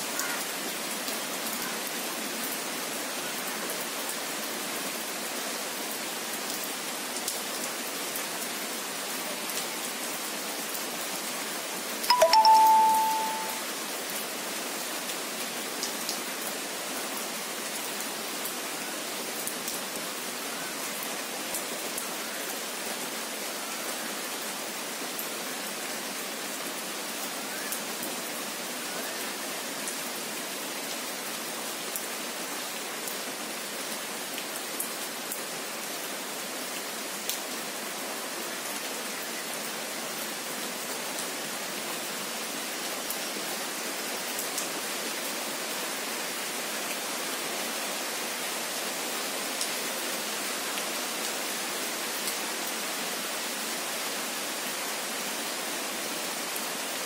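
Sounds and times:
steady rain falling: 0:00.0 - 0:57.0
brief ringing tone: 0:12.1 - 0:13.6.

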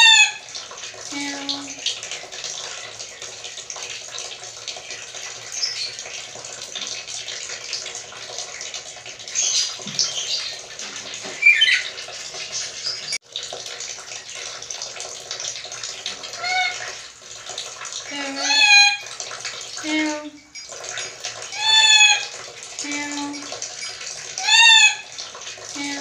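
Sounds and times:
parrot squawking calls: 0:00.0 - 0:00.4, 0:11.3 - 0:12.0, 0:16.4 - 0:16.9, 0:18.2 - 0:19.0, 0:21.5 - 0:22.3, 0:24.4 - 0:25.1.

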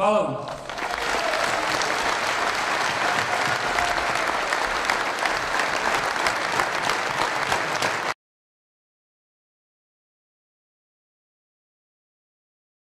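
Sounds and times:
crowd applauding: 0:00.5 - 0:08.2.

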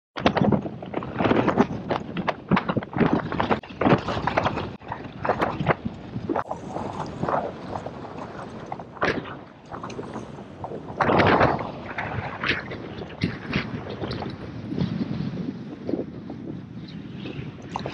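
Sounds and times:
wind on microphone: 0:00.2 - 0:17.9
sea water sloshing: 0:00.9 - 0:15.2, 0:17.2 - 0:17.9.

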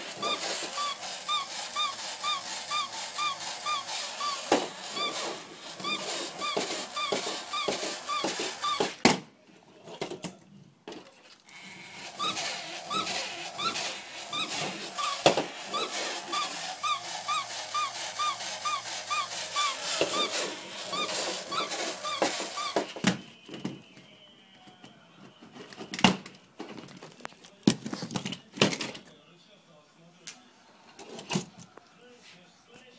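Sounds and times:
toy mechanism clicking: 0:00.0 - 0:09.0, 0:11.5 - 0:23.0
toy dog squeaky yips: 0:00.2 - 0:09.0, 0:12.2 - 0:23.0.

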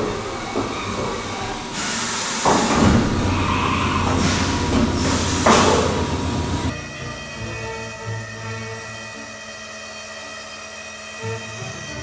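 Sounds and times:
coolant spray hiss: 0:00.0 - 0:06.7
low machine hum: 0:00.0 - 0:06.8
mill cutting: 0:00.0 - 0:06.8.

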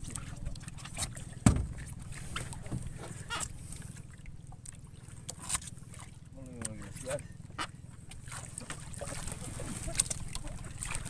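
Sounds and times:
low steady rumble: 0:00.0 - 0:11.0
loud thump: 0:01.4 - 0:01.8.

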